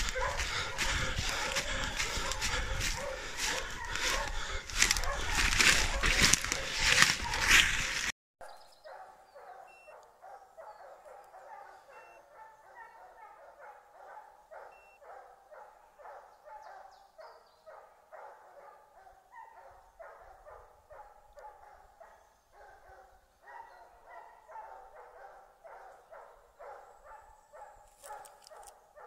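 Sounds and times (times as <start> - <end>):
dogs barking faintly: 0.0 - 8.1.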